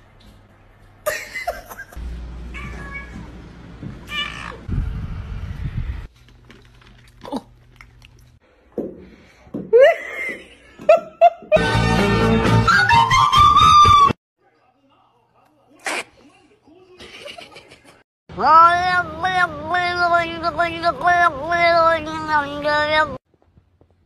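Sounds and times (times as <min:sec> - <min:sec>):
person laughing: 0:01.1 - 0:02.0, 0:09.7 - 0:11.6, 0:17.0 - 0:18.0
cats meowing: 0:02.5 - 0:03.2, 0:04.0 - 0:04.7.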